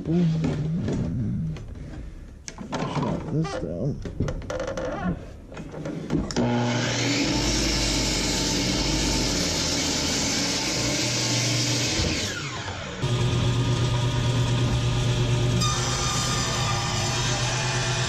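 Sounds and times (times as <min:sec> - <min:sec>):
table saw humming: 0:06.3 - 0:18.0
miter saw motor whine: 0:11.6 - 0:18.0.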